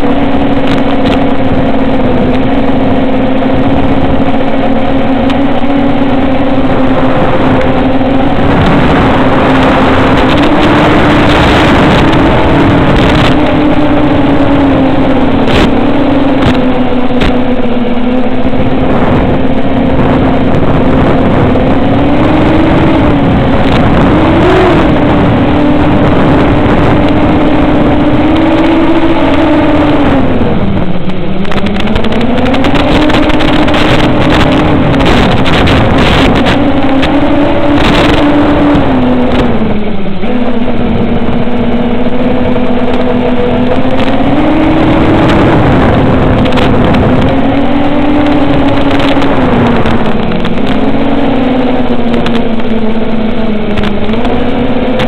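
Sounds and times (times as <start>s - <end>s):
quadcopter motors whining: 0.0s - 55.0s.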